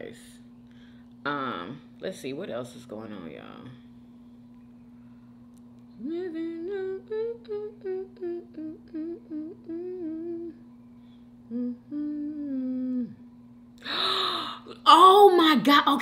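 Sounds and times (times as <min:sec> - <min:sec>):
faint steady background hum: 0:00.0 - 0:16.0
woman humming a tune: 0:05.9 - 0:10.8, 0:11.4 - 0:13.3.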